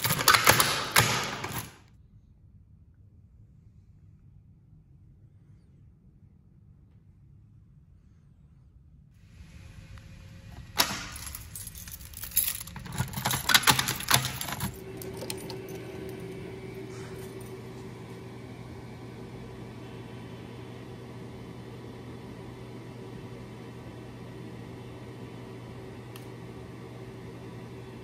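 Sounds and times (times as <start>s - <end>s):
keys jangling: 0.0s - 1.8s, 10.6s - 17.5s
fan humming: 9.2s - 28.0s.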